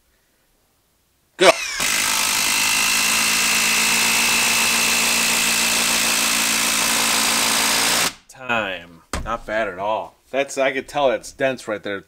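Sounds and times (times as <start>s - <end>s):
impact driver driving screw into wood: 1.5s - 8.2s.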